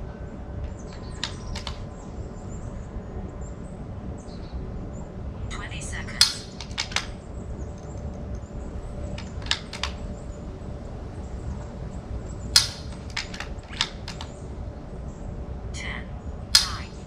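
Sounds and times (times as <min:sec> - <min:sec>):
steady low rumble: 0:00.0 - 0:17.0
metallic rifle action clicks: 0:00.7 - 0:01.8, 0:06.2 - 0:07.2, 0:09.2 - 0:10.0, 0:12.5 - 0:14.3, 0:16.6 - 0:16.9.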